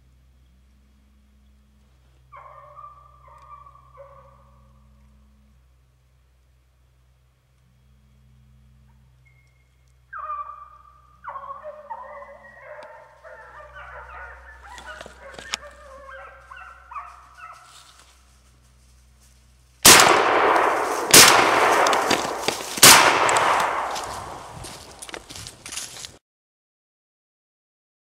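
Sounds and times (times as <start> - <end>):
hounds baying: 2.0 - 5.4, 10.1 - 18.6, 20.2 - 26.1
shotgun blasts echoing: 19.8 - 25.0.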